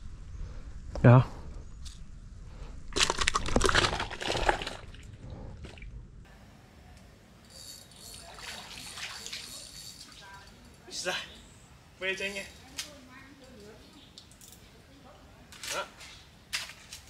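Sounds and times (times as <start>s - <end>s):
fish splashing in bucket: 3.0s - 5.0s.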